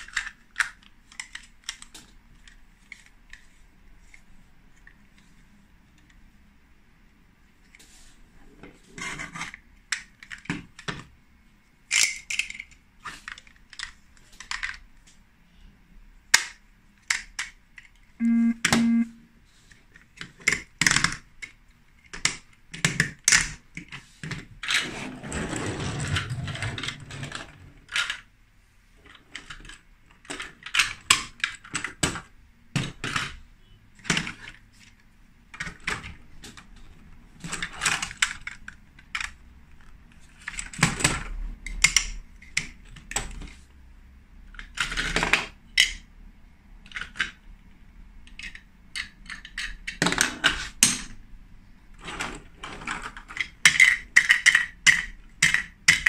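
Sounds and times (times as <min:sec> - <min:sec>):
plastic toy bricks clicking: 0:00.0 - 0:03.5, 0:11.9 - 0:14.8, 0:16.3 - 0:18.0, 0:20.2 - 0:24.8, 0:29.1 - 0:32.2, 0:37.4 - 0:43.6, 0:44.5 - 0:46.0, 0:46.8 - 0:47.5, 0:48.2 - 0:51.2, 0:52.0 - 0:56.0
short low buzzes: 0:18.2 - 0:19.3.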